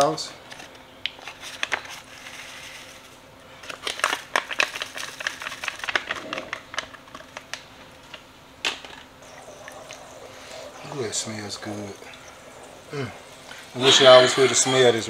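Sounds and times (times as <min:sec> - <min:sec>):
seasoning packet crinkling: 0:01.2 - 0:08.2.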